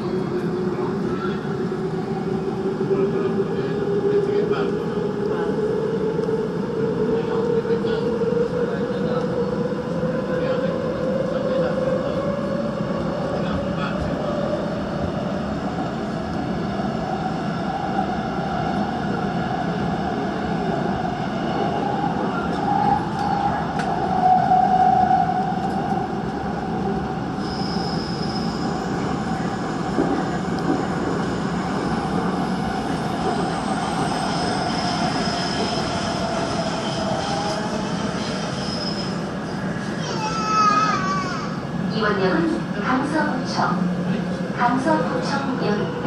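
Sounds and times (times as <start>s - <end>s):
high-pitched wheel squeal: 27.4s - 28.9s, 38.3s - 39.3s.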